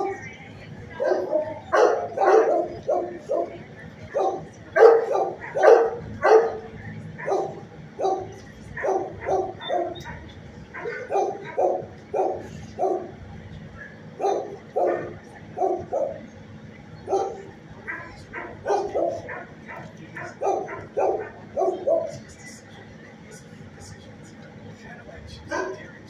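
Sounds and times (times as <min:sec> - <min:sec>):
dog barking: 0:01.0 - 0:13.2, 0:14.2 - 0:16.2, 0:17.1 - 0:22.2, 0:25.5 - 0:25.8.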